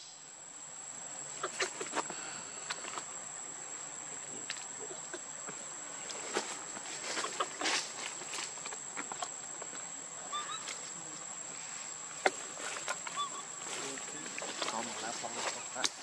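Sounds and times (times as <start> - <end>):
high insect whine: 0.0 - 16.0
dry leaves rustling: 6.0 - 9.8.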